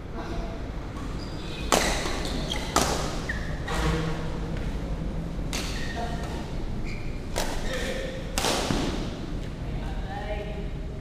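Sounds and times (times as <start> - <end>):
shoe squeaks: 1.0 - 4.2, 5.6 - 8.1
badminton racket hitting shuttlecock: 7.3 - 9.1.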